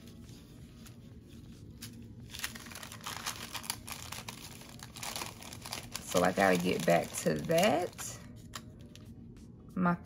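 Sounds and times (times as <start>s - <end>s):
plastic packaging crinkling: 1.6s - 8.2s.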